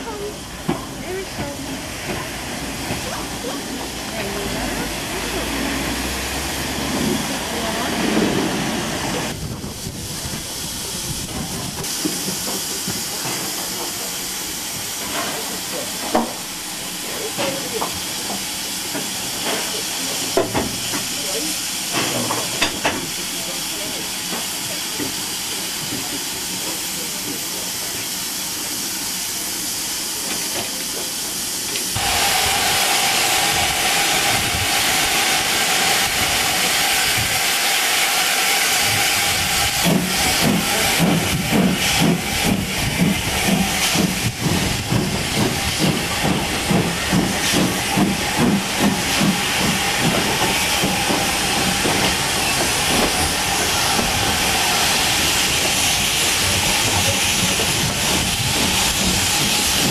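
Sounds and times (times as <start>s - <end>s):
steam locomotive hissing: 0.0s - 59.9s
steam exhaust chuffs: 32.0s - 59.9s.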